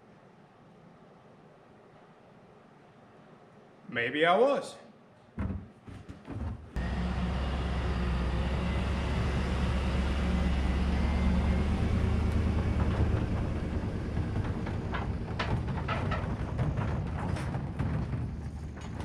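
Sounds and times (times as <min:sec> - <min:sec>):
truck engine drone: 0:06.8 - 0:19.0.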